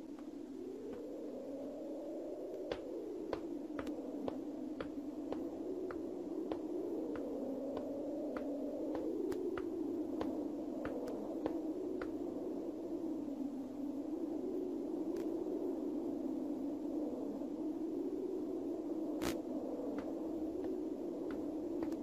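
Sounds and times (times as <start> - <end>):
hard-soled footsteps on stone: 2.7 - 9.7.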